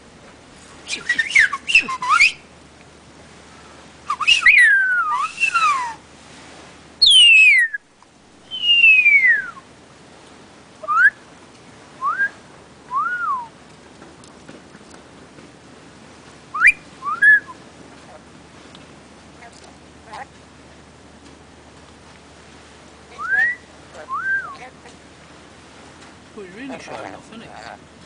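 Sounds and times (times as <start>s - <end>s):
parrot whistled calls: 0.9s - 2.5s, 4.1s - 6.0s, 7.0s - 7.8s, 8.5s - 9.6s, 10.8s - 11.2s, 16.5s - 17.6s, 23.1s - 24.7s.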